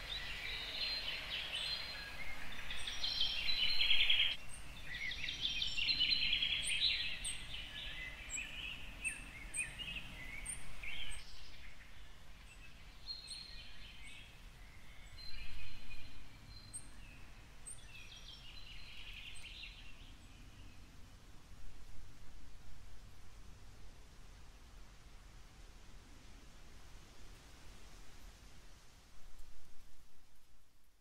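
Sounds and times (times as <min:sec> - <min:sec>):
birds chirping and trilling: 0:00.0 - 0:21.2
faint steady background hiss: 0:00.0 - 0:31.0.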